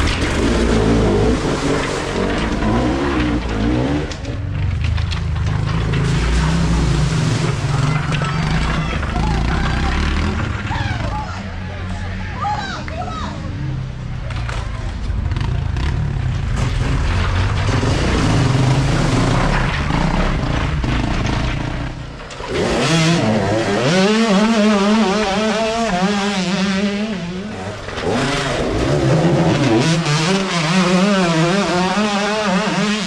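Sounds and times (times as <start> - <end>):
dirt bike engines revving: 0.0 - 33.0
water splashing: 0.3 - 3.4, 5.6 - 8.8.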